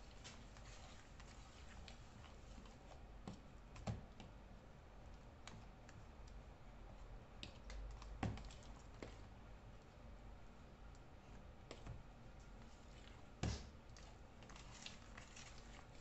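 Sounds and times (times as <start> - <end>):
fork stirring batter: 0.0 - 3.4, 14.0 - 16.0.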